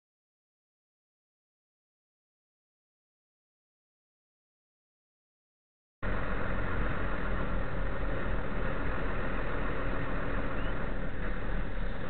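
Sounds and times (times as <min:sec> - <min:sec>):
car engine running: 0:06.0 - 0:12.0.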